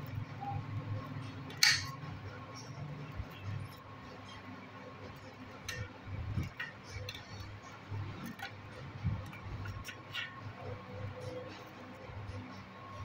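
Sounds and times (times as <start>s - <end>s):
metal snips cutting wire: 1.5s - 2.0s.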